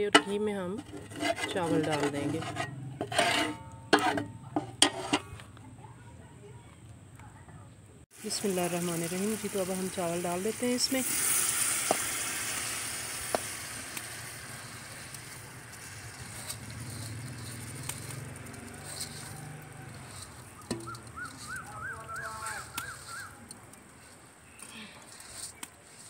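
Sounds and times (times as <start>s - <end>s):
rice sizzling in hot oil: 8.1s - 26.0s.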